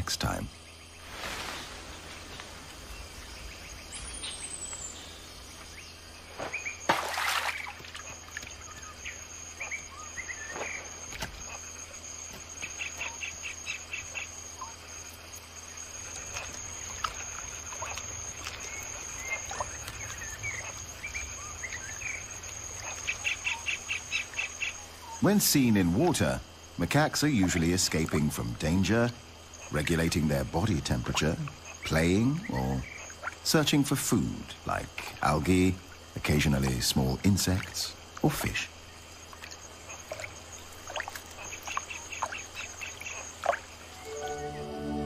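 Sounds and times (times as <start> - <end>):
high-pitched insect whine: 0.0 - 45.0
rapid chirping trills: 1.7 - 33.7
bird chirps: 8.3 - 11.7.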